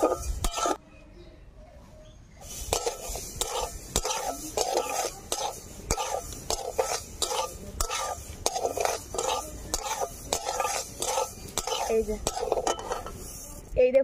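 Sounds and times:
spatula stirring lentils in pan: 0.0 - 0.8, 2.4 - 14.0
spatula clicking on pan: 2.7 - 13.1.

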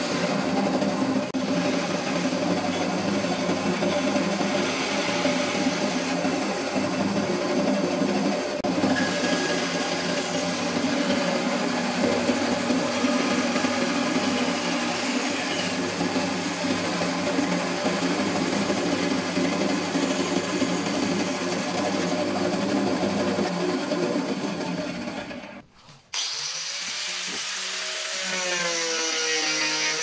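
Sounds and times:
band saw cutting wood: 0.0 - 25.5, 26.1 - 30.0.

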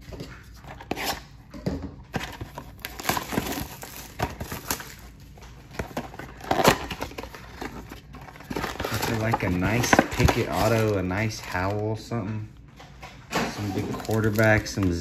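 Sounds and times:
plastic wrap crinkling and tearing: 2.2 - 11.9, 13.5 - 15.0.

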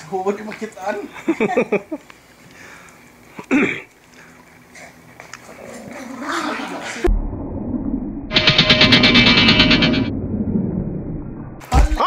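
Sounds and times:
dogs growling and snarling: 4.7 - 7.1.

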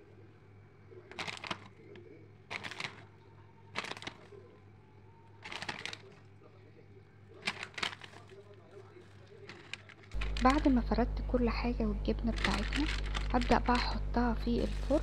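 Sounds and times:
shredded cheese rustling: 1.1 - 3.1, 3.7 - 4.5, 5.4 - 6.2, 7.4 - 10.7, 12.3 - 15.0.

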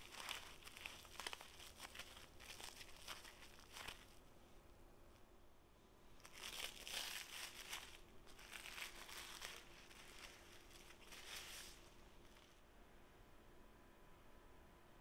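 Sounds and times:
cling film crinkling: 0.0 - 4.2, 6.2 - 12.6.

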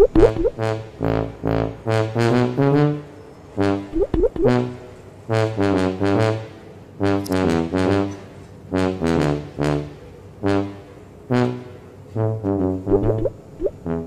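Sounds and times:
tuba tune: 0.0 - 14.0.

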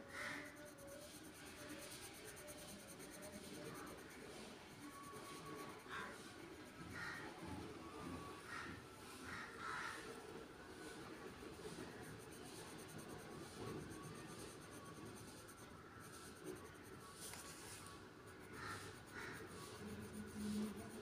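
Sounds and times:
pencil scratching on paper: 0.1 - 6.7, 10.8 - 21.0.

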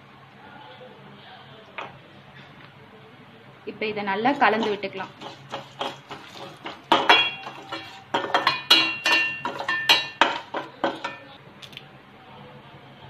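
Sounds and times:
metal spoon scraping a steel pan: 4.4 - 11.2.

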